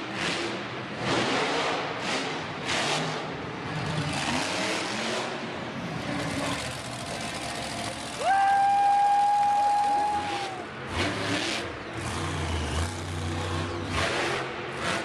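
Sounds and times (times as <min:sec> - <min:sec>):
truck engine revving hard: 0:00.1 - 0:08.2, 0:09.5 - 0:15.0.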